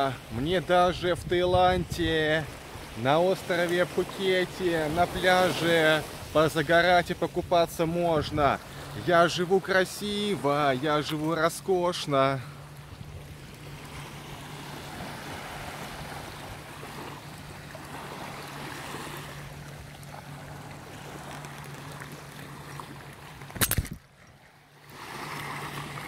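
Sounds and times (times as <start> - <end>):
small waves lapping on shore: 0.0 - 26.0
wind on microphone: 0.8 - 2.3.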